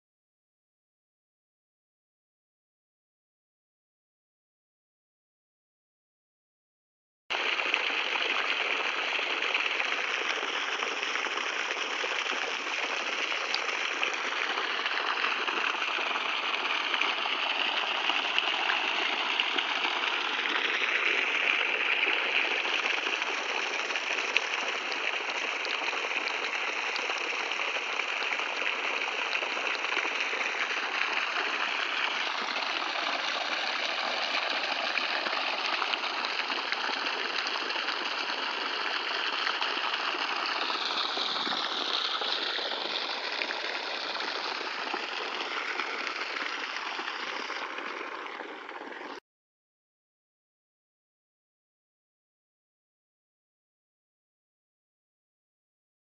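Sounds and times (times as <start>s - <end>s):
water gushing from pipe: 7.3s - 49.2s.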